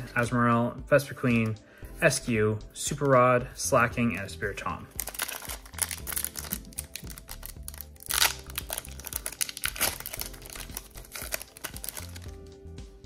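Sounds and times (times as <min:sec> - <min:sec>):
background music: 0:00.0 - 0:13.0
foil wrapper crinkling and tearing: 0:05.0 - 0:12.4.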